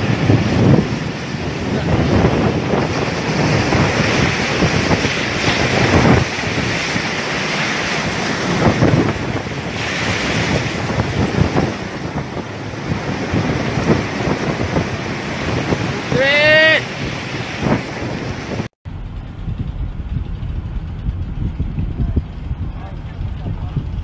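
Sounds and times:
waves crashing over ship deck: 0:00.0 - 0:18.7
wind buffeting microphone: 0:00.0 - 0:24.0.

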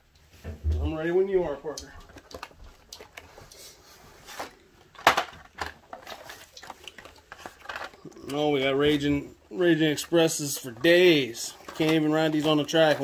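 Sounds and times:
plastic blister packs clattering: 0:04.3 - 0:13.0.

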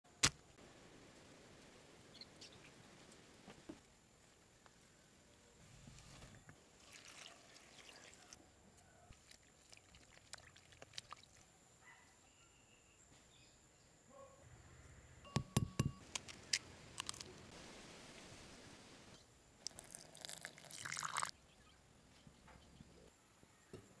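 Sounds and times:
mushrooms tearing and rustling: 0:16.0 - 0:17.5.

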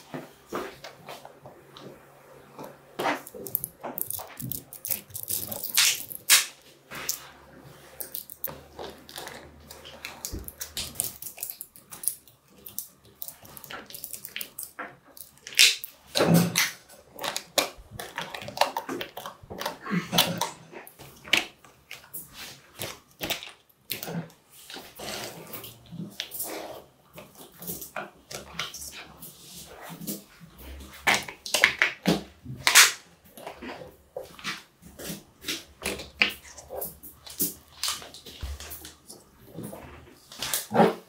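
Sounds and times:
magnetic balls clicking and clacking: 0:03.2 - 0:06.4, 0:08.0 - 0:08.6.

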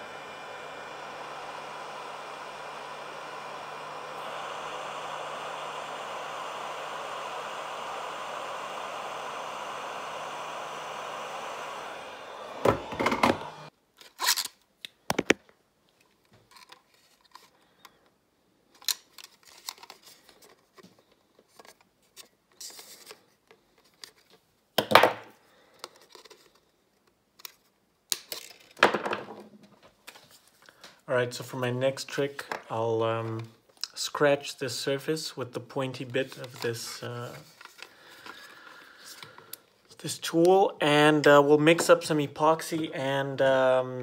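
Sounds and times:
heat gun blowing: 0:00.0 - 0:13.7, 0:36.2 - 0:43.4.

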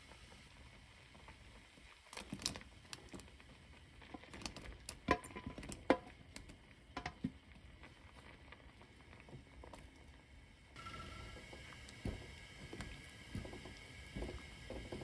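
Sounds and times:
stew bubbling: 0:00.4 - 0:15.0
vegetables plopping into a pot: 0:04.1 - 0:07.5.

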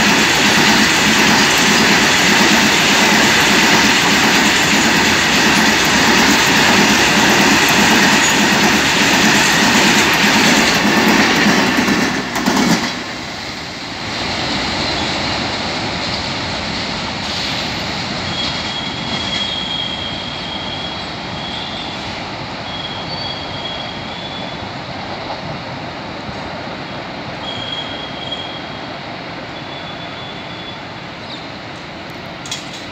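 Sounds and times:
freight train rolling past: 0:00.0 - 0:32.9
high wheel squeal: 0:17.2 - 0:24.7, 0:27.4 - 0:28.8, 0:29.5 - 0:31.5.

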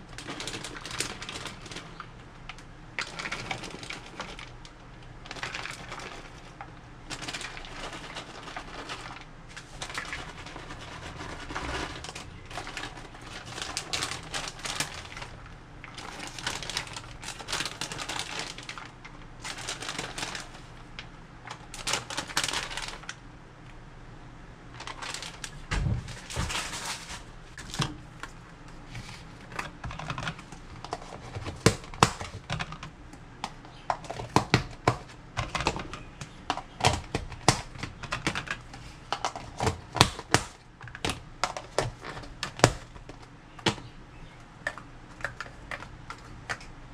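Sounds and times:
plastic bag crinkling: 0:00.0 - 0:23.2, 0:24.8 - 0:27.9.

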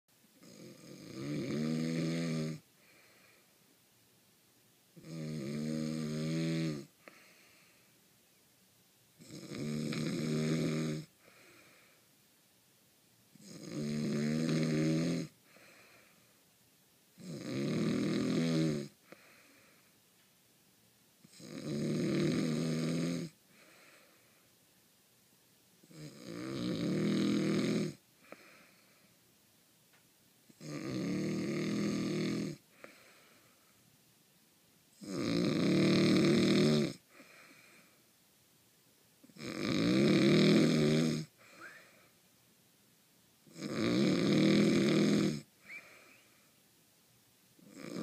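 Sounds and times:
man snoring: 0:00.4 - 0:03.4, 0:05.0 - 0:07.8, 0:09.2 - 0:12.0, 0:13.4 - 0:16.1, 0:17.2 - 0:19.7, 0:21.3 - 0:24.1, 0:25.8 - 0:28.7, 0:30.5 - 0:33.2, 0:35.0 - 0:37.9, 0:39.3 - 0:42.0, 0:43.5 - 0:46.2, 0:47.6 - 0:48.0
faint breath: 0:02.7 - 0:03.7, 0:07.0 - 0:08.0, 0:11.1 - 0:12.2, 0:15.4 - 0:16.5, 0:19.0 - 0:20.1, 0:23.4 - 0:24.6, 0:28.2 - 0:29.3, 0:32.7 - 0:34.0, 0:37.0 - 0:38.1, 0:41.3 - 0:42.3, 0:45.6 - 0:46.7.

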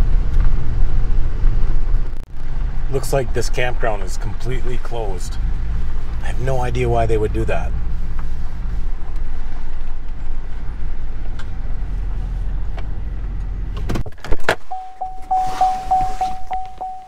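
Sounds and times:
truck engine rumble inside cab: 0:00.0 - 0:17.0
door-open warning chime beeping: 0:14.7 - 0:17.0.

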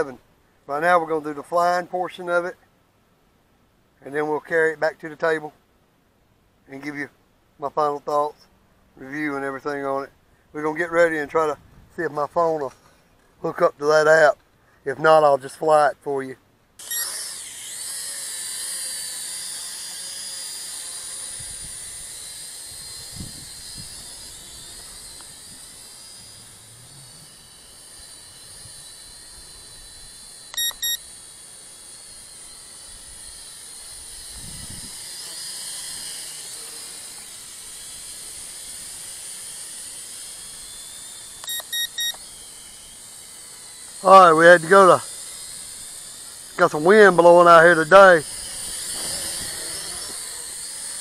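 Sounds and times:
toy drone propellers whining: 0:16.8 - 0:51.0.

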